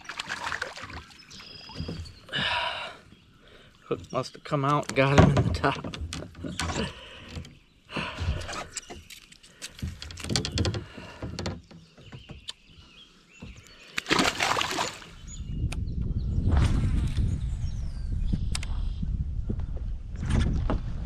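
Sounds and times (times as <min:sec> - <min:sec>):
small clicks and rustles: 0:08.3 - 0:12.6.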